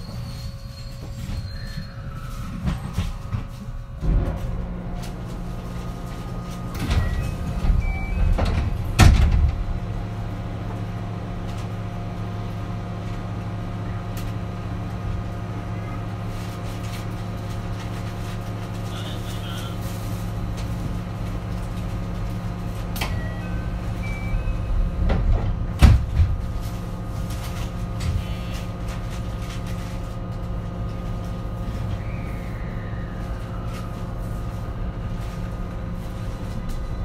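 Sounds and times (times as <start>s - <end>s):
train low hum: 0.0s - 37.0s
train doors thudding shut: 6.7s - 10.0s, 25.0s - 26.6s.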